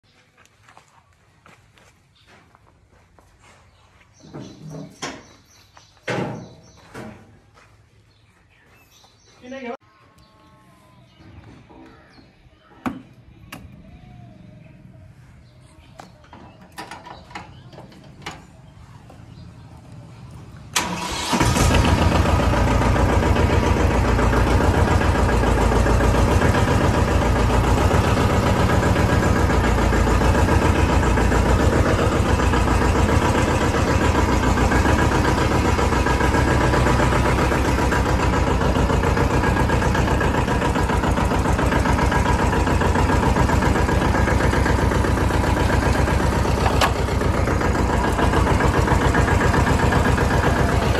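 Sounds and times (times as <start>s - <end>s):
tractor diesel engine starting: 13.2s - 50.9s.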